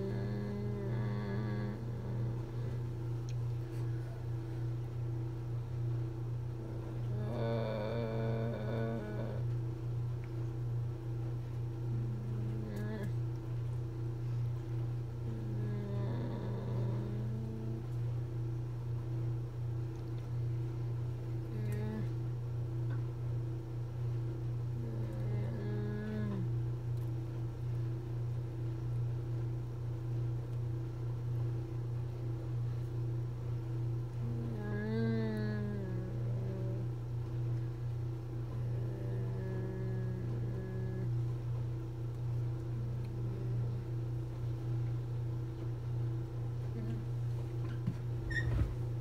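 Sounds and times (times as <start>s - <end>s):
woman's wordless vocal sounds: 0.0s - 2.8s, 6.9s - 9.6s, 21.4s - 22.2s
low electrical hum: 0.0s - 49.0s.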